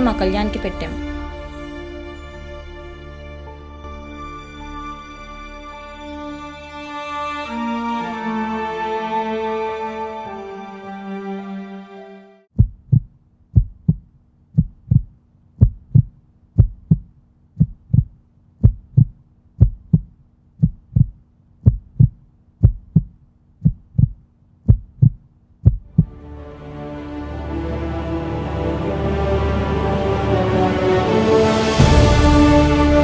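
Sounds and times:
music: 0.0 - 12.5, 25.9 - 33.0
heartbeat double thump: 12.6 - 26.2.

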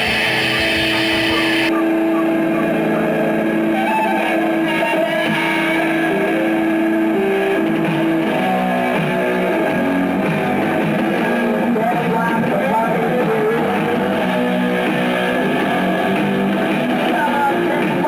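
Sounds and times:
electric guitar playing: 0.0 - 18.0.

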